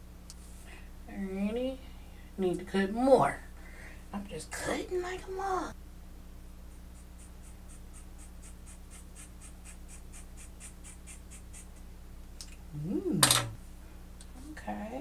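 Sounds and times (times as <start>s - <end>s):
person humming through lips: 12.7s - 13.3s.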